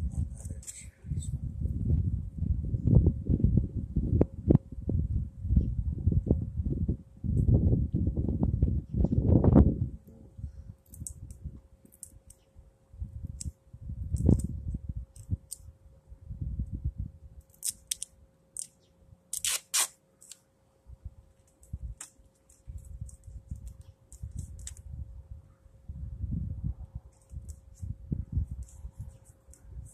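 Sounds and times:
faint steady hum: 0:00.0 - 0:29.9
duct tape ripping off roll: 0:17.5 - 0:18.7, 0:19.3 - 0:20.4.

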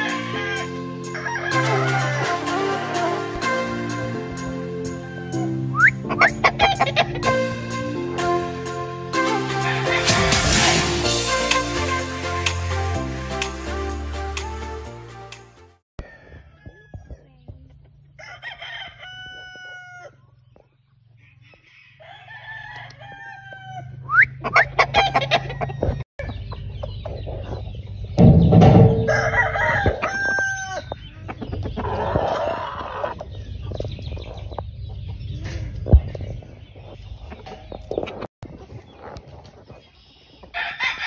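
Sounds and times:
chickens clucking: 0:00.0 - 0:03.4, 0:04.3 - 0:08.3, 0:16.0 - 0:41.0
roosters crowing: 0:00.0 - 0:07.5, 0:09.1 - 0:10.9, 0:16.0 - 0:17.3, 0:18.1 - 0:26.4, 0:28.2 - 0:34.4, 0:40.4 - 0:41.0.

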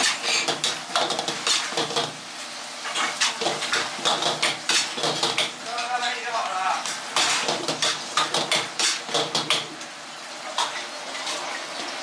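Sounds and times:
ladle clanking and scraping wok: 0:00.0 - 0:06.1, 0:06.8 - 0:09.8.

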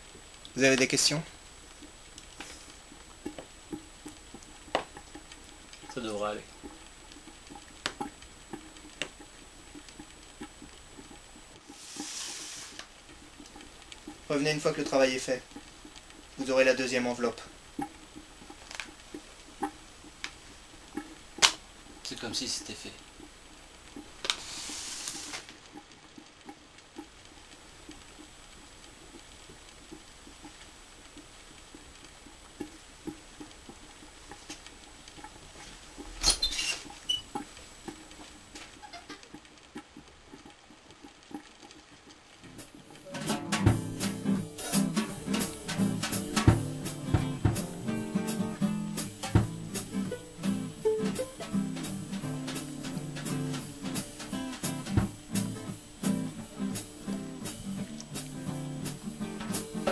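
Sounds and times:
short hissing swish: 0:11.7 - 0:12.8, 0:24.3 - 0:25.5
door squeak: 0:36.2 - 0:37.3
soft footsteps: 0:48.4 - 0:59.9.

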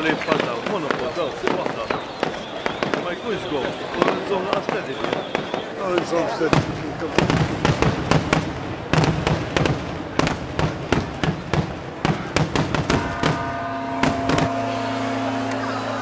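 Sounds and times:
fireworks bursting with sharp bangs: 0:00.0 - 0:15.7
church bell ringing: 0:13.0 - 0:16.0.

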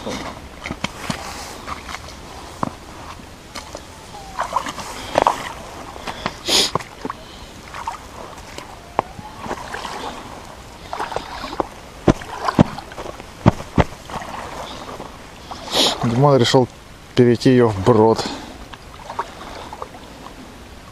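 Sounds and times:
boots splashing through water: 0:09.4 - 0:16.2.

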